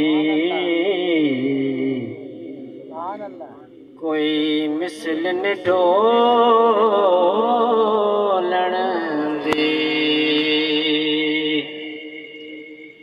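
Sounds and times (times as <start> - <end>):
man singing devotional song: 0.0 - 13.0.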